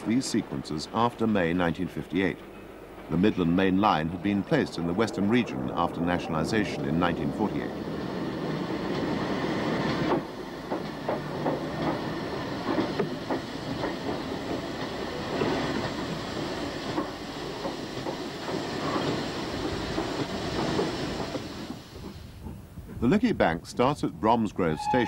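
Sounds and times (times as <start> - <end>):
train wheels knocking on rail joints: 7.6 - 22.6.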